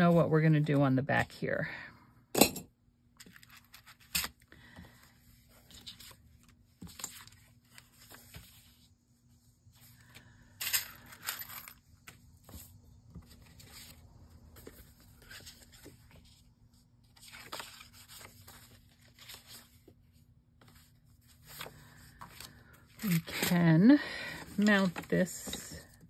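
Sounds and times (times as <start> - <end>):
paper rustling and sliding: 12.0 - 23.6.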